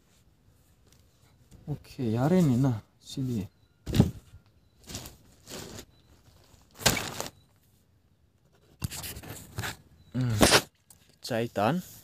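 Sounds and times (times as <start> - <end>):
scraping and crunching noises: 3.3 - 7.7.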